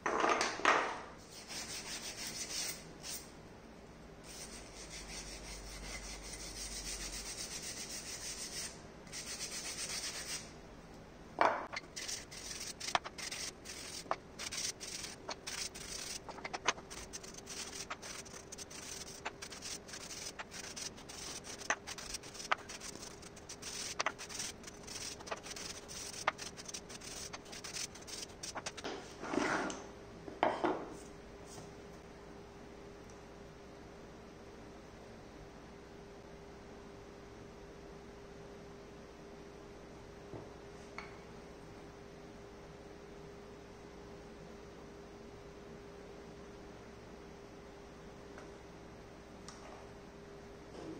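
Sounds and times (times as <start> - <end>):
hand sanding wood: 1.3 - 3.2, 4.3 - 10.5, 11.8 - 28.8
long scrapes: 11.8 - 29.6.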